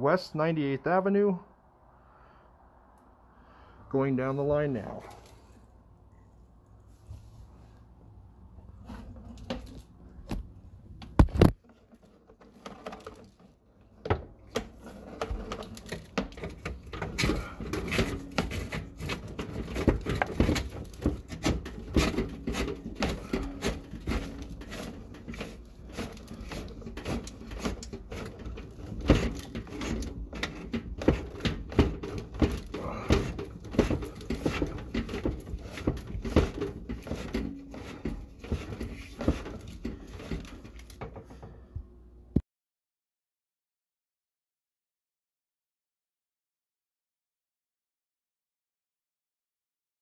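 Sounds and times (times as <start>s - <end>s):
cable rattling in a drain pipe: 11.0s - 41.5s.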